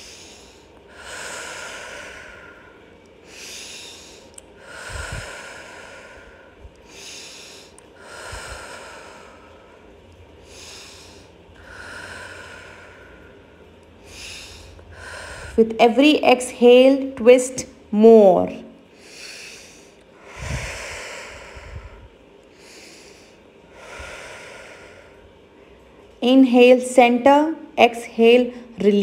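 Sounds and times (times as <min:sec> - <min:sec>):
woman breathing through nose: 0:00.0 - 0:15.6, 0:18.9 - 0:26.1.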